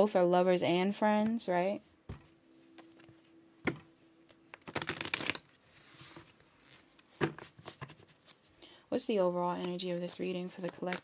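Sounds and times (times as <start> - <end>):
cards fluttering in shuffle: 4.6 - 5.5.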